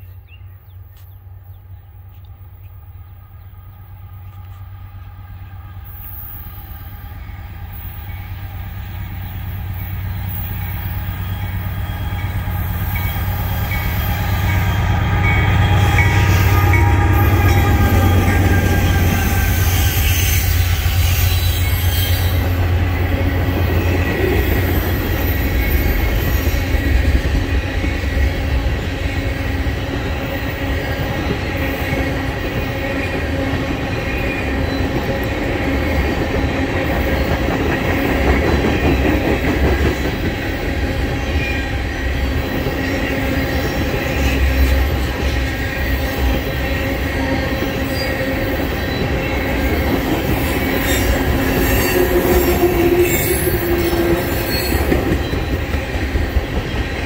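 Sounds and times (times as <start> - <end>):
diesel locomotives passing: 0.0 - 57.0
heavy train wheel rumble: 0.0 - 57.0
high train wheel squeal: 4.0 - 57.0.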